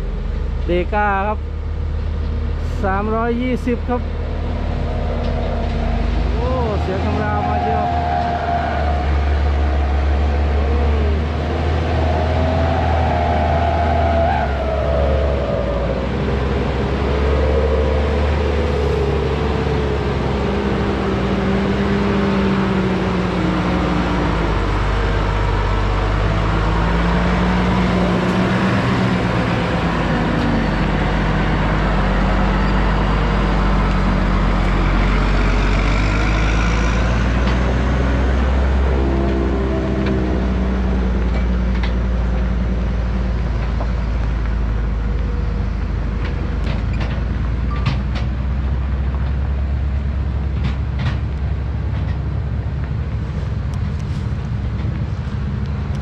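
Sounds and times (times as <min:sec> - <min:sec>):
truck diesel engine roaring: 0:00.0 - 0:56.0.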